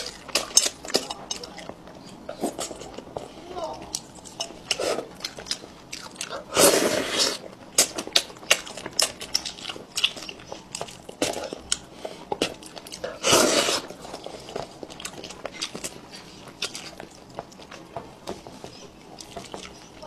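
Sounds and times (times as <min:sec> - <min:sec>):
wet chewing and lip smacking: 0:00.0 - 0:20.0.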